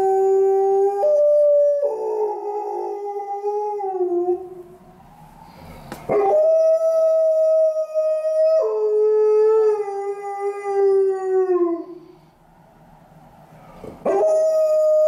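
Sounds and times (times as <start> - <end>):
dog howling: 0.0 - 4.6, 6.1 - 12.0, 14.0 - 15.0.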